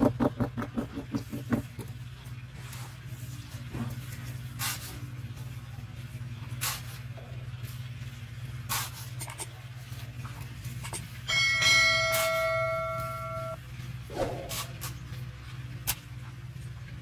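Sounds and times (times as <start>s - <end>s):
steady low hum: 0.0s - 17.0s
bell-like chime: 11.3s - 13.6s.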